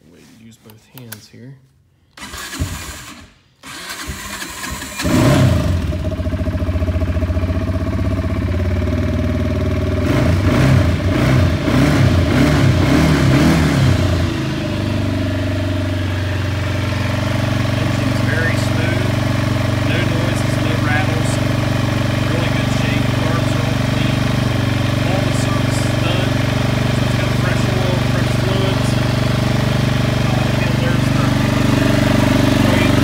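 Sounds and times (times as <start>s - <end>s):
electric starter cranking: 2.1s - 6.0s
engine idling: 2.3s - 33.0s.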